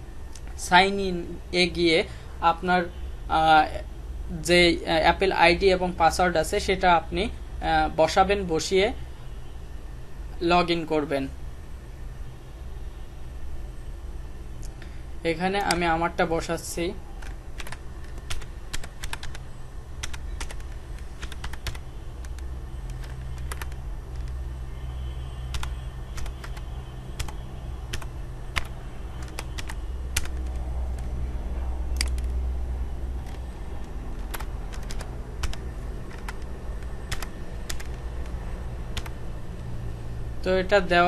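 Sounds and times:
steady low hum: 0.0s - 41.0s
keyboard key clicks: 20.0s - 24.4s, 25.6s - 26.6s, 27.2s - 31.1s, 32.0s - 32.4s, 33.2s - 33.4s, 34.2s - 38.4s, 39.0s - 39.2s.

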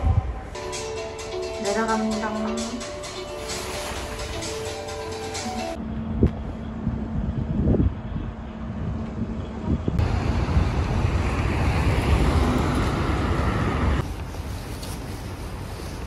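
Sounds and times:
wind buffeting microphone: 5.7s - 16.0s.

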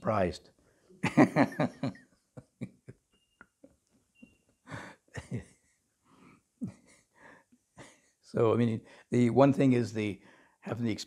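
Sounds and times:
quiet chuckles: 1.7s - 3.7s, 4.7s - 5.7s
breaths: 4.6s - 5.2s, 6.0s - 8.2s, 8.8s - 9.2s, 10.2s - 10.7s.

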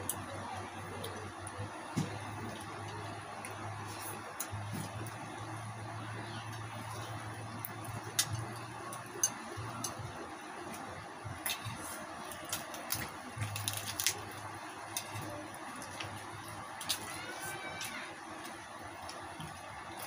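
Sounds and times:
wet squishing of meat: 10.8s - 20.0s
crispy skin crackling: 11.4s - 20.0s.

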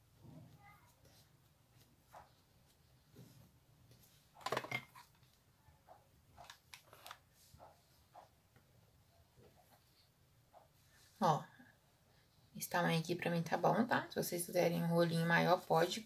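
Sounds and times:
ribbon rustling on paper: 6.4s - 8.3s.

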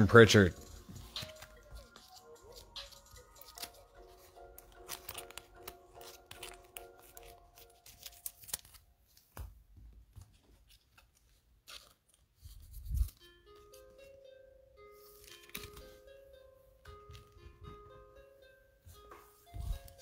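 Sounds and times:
faint background music: 0.0s - 9.5s, 12.7s - 20.0s
foil wrapper tearing and crinkling: 1.2s - 8.9s.

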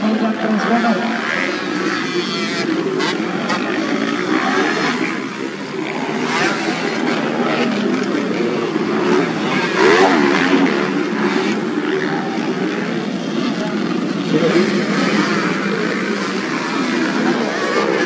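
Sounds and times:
racing motorcycle engines revving: 0.0s - 18.0s.

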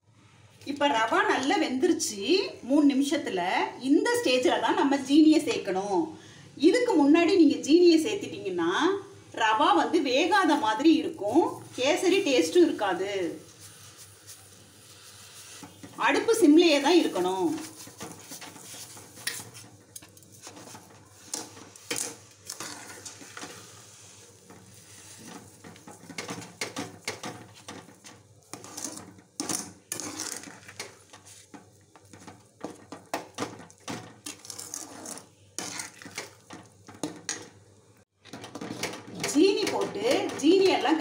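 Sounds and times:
metal spoon scraping a metal pot: 14.8s - 37.5s.

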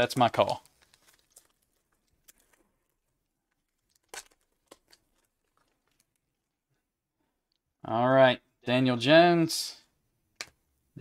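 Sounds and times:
foil wrapper tearing and crinkling: 0.0s - 6.3s.

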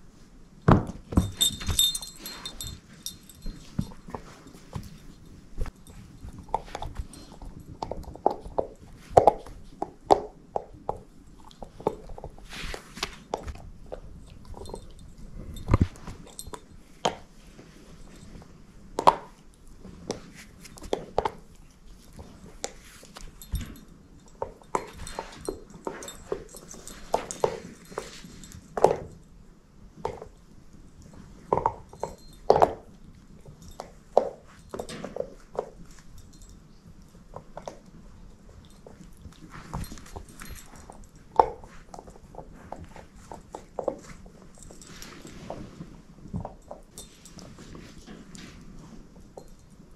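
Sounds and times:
dog chewing rope toy: 0.7s - 17.2s.

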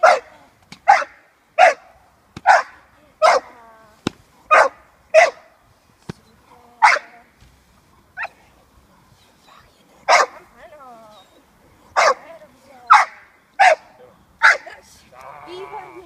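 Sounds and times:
puppy barking sharply: 0.0s - 0.3s, 0.9s - 3.5s, 4.5s - 5.4s, 6.8s - 7.1s, 10.1s - 10.4s, 12.0s - 12.2s, 12.9s - 14.7s.

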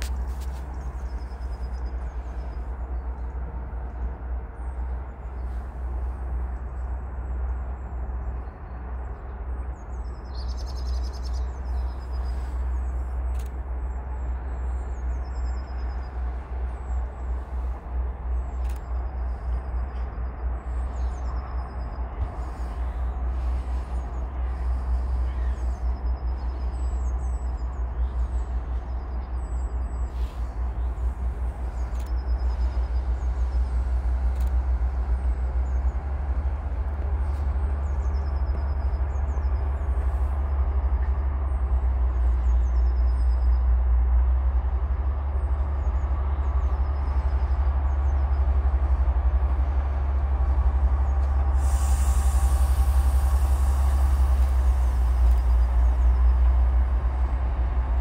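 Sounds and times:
small birds chirping: 0.0s - 43.8s
steady low rumble: 0.0s - 58.0s.

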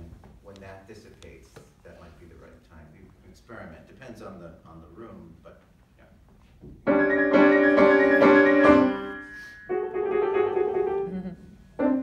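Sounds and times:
piano chords: 6.9s - 12.0s.

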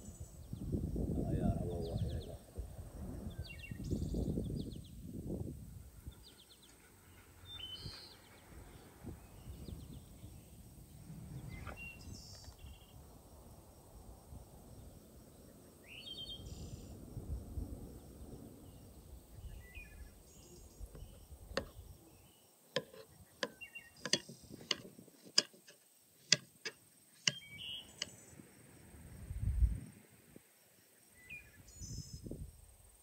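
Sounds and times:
knife blade knocking on wood: 21.0s - 21.8s, 22.8s - 28.2s.

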